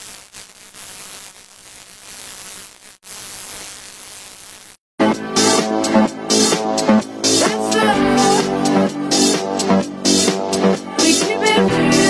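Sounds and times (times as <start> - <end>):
static hiss: 0.0 - 4.8
electronic dance music: 5.0 - 12.0.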